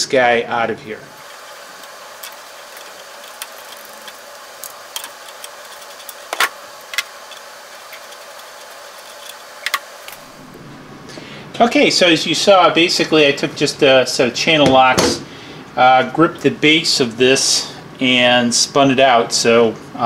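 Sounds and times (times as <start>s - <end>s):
steady hiss: 0.0s - 20.0s.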